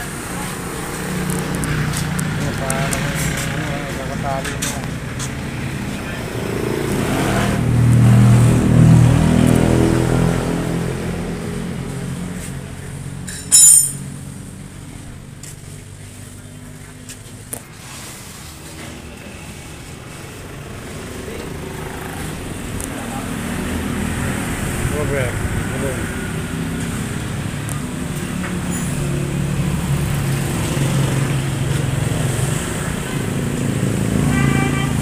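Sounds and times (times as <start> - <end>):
motorcycle engine running: 0.0 - 13.0
high-pitched squeal: 13.3 - 14.1.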